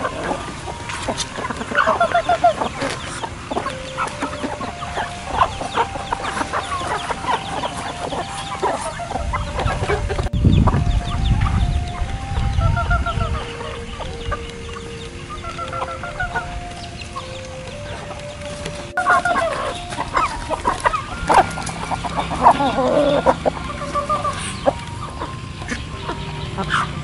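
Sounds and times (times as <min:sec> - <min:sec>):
chickens clucking: 0:00.0 - 0:27.0.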